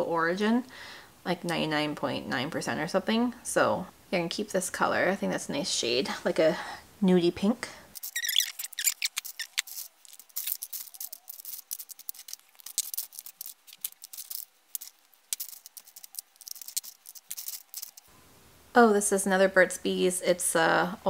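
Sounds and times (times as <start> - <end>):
plastic tubes clicking together: 7.9 - 18.1.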